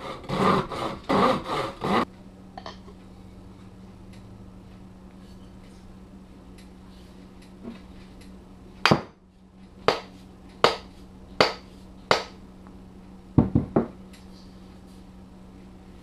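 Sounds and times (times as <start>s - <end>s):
steady low hum: 0.0s - 16.0s
hatchet knocking on wooden bench: 13.4s - 13.9s.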